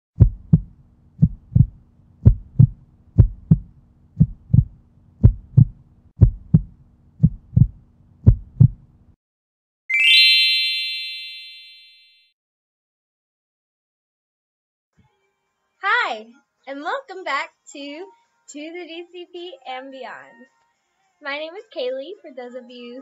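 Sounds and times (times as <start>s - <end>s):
heartbeat thumps: 0.2s - 8.9s
bright rising chime: 9.9s - 12.1s.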